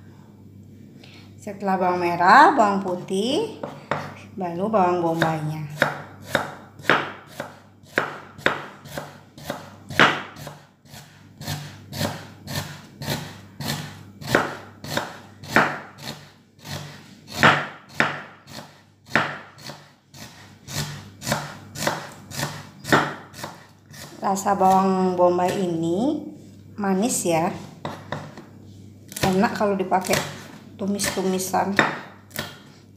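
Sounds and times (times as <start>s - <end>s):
knife chopping on wooden board: 3.6s - 4.2s, 5.2s - 24.8s, 27.8s - 28.4s, 30.0s - 32.6s.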